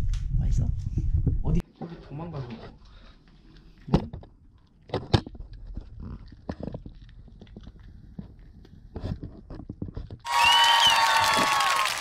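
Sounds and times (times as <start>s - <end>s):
puppy crunching a dry treat: 5.5s - 8.6s.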